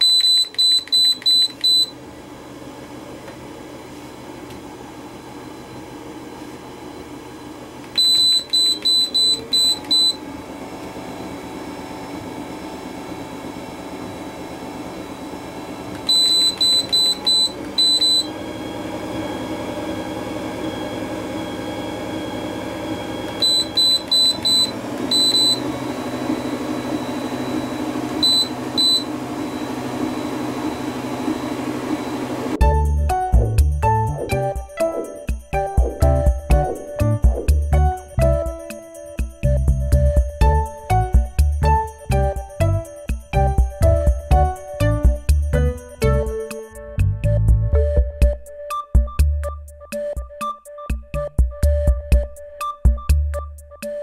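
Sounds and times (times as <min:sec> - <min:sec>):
treadmill motor and belt humming: 0:00.0 - 0:32.7
high electronic beeps: 0:08.0 - 0:10.2, 0:16.1 - 0:18.3, 0:23.4 - 0:25.6, 0:28.2 - 0:29.1.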